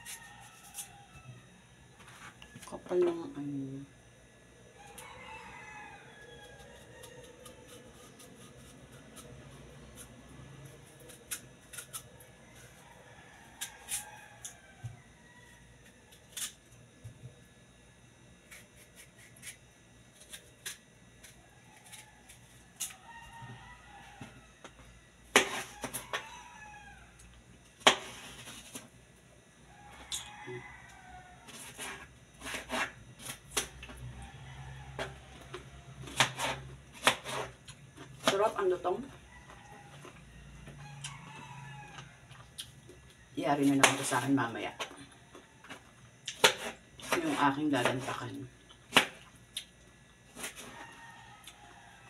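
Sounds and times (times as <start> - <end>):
knife cutting melon rind: 0.0 - 1.2, 5.9 - 15.0, 15.8 - 16.8, 18.4 - 27.0, 27.8 - 28.9, 30.0 - 34.0, 34.9 - 40.2, 45.6 - 49.7, 50.3 - 51.7
knife slicing through melon: 6.6 - 12.1, 31.5 - 33.4, 36.1 - 37.6.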